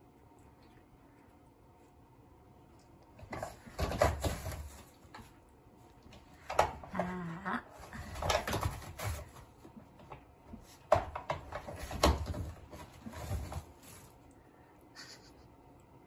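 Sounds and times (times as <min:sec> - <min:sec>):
toilet paper rustling: 0:07.8 - 0:14.3.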